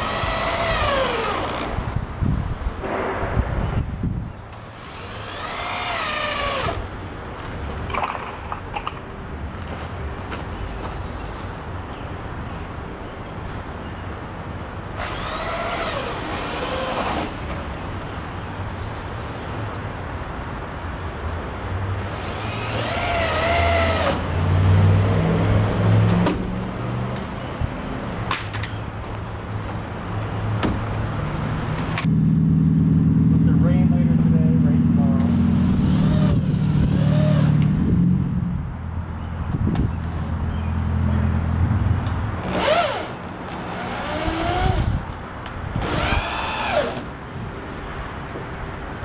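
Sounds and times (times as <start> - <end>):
low rumble: 2.8 - 4.5.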